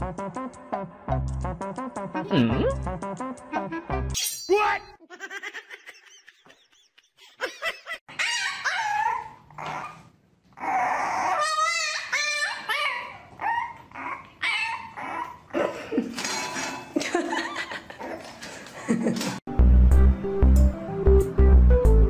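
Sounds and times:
dogs whining and yipping: 8.1s - 15.6s.

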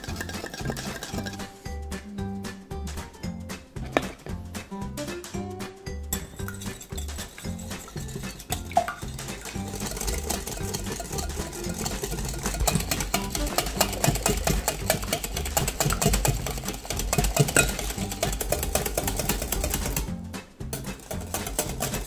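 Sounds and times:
whisk clicking against glass bowl: 0.0s - 1.4s, 6.1s - 20.1s, 20.7s - 22.0s
background music: 0.0s - 22.0s.

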